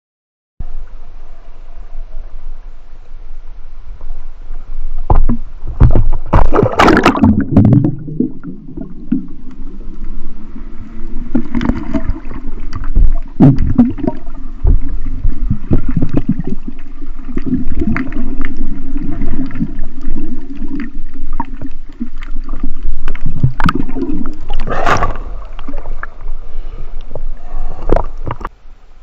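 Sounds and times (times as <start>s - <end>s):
muffled underwater rumbling: 0.6s - 29.0s
rushing splash: 6.3s - 8.0s.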